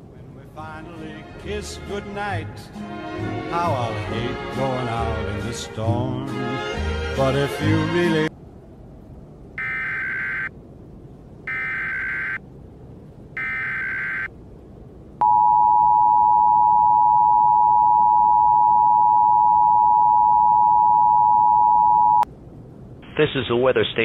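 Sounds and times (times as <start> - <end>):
loud steady two-tone beep: 9.6 - 10.5, 11.5 - 12.4, 13.4 - 14.3, 15.2 - 22.2.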